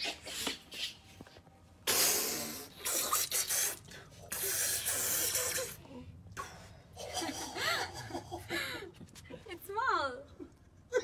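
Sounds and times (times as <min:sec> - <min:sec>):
man blowing onto hands: 0:01.8 - 0:05.8.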